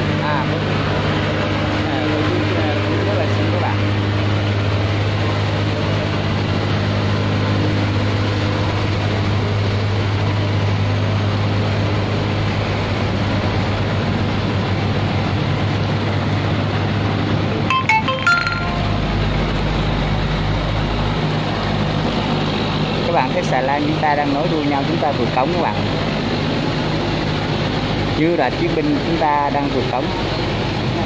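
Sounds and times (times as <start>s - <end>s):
boat engines droning: 0.0s - 31.0s
deep engine rumble: 0.0s - 31.0s.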